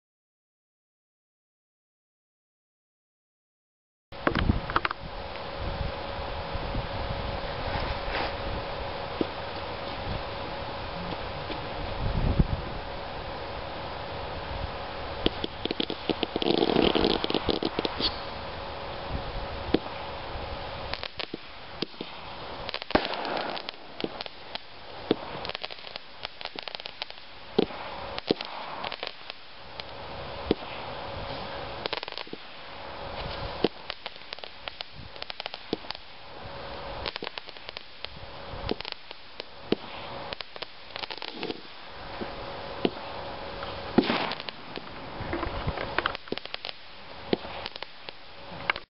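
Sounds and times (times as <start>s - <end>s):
fireworks popping and crackling: 4.2s - 48.9s
steady hiss: 4.2s - 48.9s
fireworks bangs: 15.0s - 48.8s.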